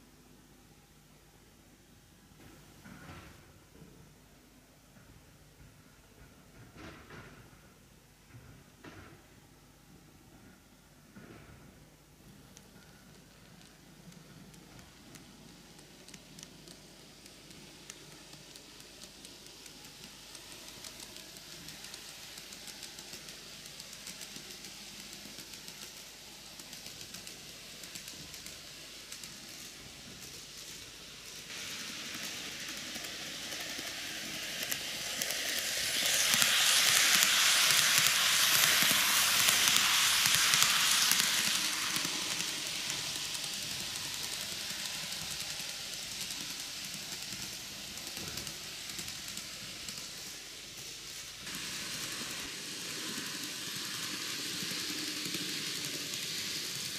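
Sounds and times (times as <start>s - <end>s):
model train rolling on track: 11.8s - 56.9s.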